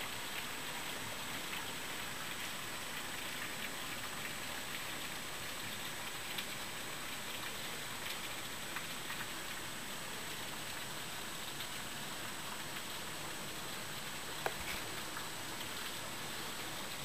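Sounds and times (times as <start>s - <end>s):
heavy rain falling: 3.9s - 17.0s.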